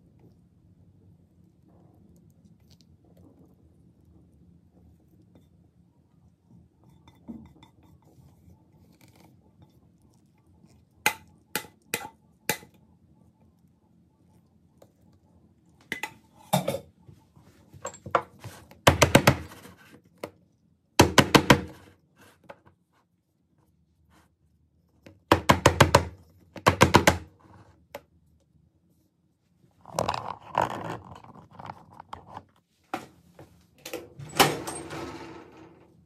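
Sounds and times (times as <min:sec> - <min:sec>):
rapid knocks on a metal cake pan: 0:18.9 - 0:19.5, 0:21.0 - 0:21.7, 0:25.3 - 0:27.3.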